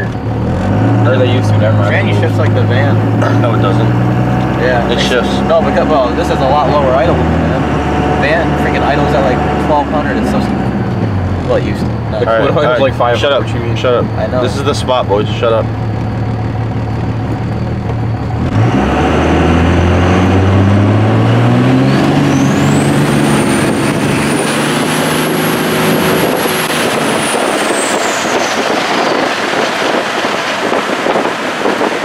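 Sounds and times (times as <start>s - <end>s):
diesel pickup accelerating: 0.0s - 32.0s
road and wind noise: 0.0s - 32.0s
high turbo whistle: 20.0s - 31.3s.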